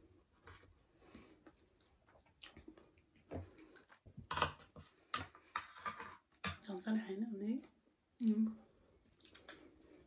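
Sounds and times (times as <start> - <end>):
chewing: 1.3 - 4.0, 9.0 - 10.0
plastic forks scraping plates: 4.2 - 6.6.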